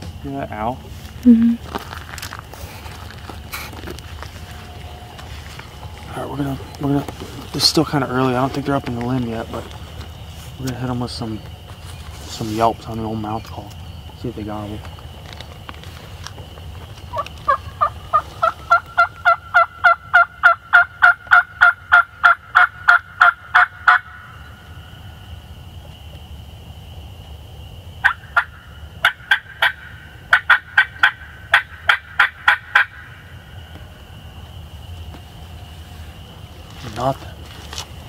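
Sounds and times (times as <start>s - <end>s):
turkey call yelps: 17.1s - 24.3s, 28.0s - 33.2s.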